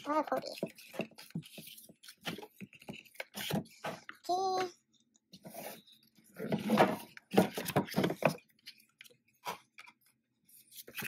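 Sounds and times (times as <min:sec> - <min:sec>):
cardboard and paper rubbing: 0:00.0 - 0:04.0.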